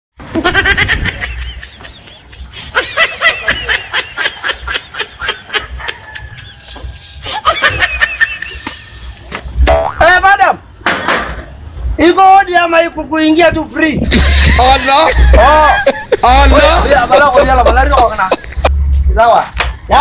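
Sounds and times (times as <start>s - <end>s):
high-pitched laughing bursts: 0.3s - 9.1s, 14.1s - 18.7s.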